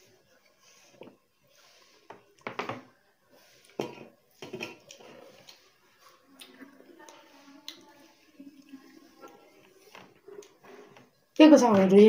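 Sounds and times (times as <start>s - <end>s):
wet chewing and lip-smacking: 4.9s - 7.9s.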